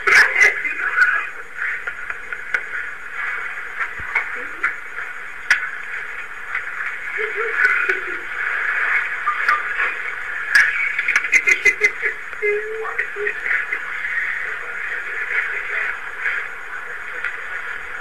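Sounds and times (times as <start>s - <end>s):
students talking and laughing: 0.0s - 2.7s, 6.8s - 18.0s.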